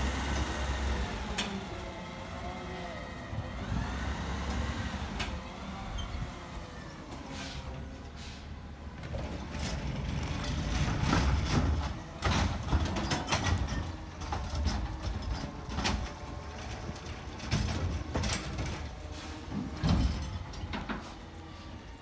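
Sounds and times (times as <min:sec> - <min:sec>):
truck engine rumbling: 0:00.0 - 0:22.0
carts knocking and clanking: 0:09.0 - 0:21.2.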